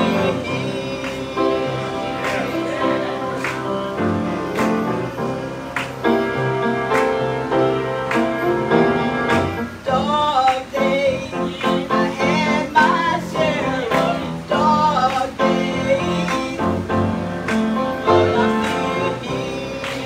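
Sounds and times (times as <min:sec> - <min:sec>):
person singing: 0:00.0 - 0:05.1, 0:09.7 - 0:17.1, 0:18.0 - 0:20.0
piano playing slow chords: 0:00.0 - 0:20.0.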